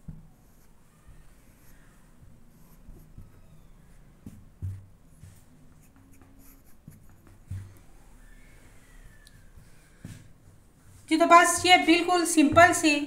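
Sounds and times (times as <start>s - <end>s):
soft low thumps: 4.2s - 5.4s, 12.3s - 12.9s.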